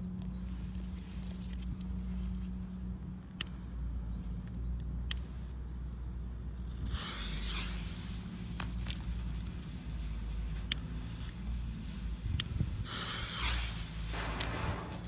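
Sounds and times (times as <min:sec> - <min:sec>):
low background rumble: 0:00.0 - 0:15.0
firecracker fuse hissing: 0:06.8 - 0:15.0.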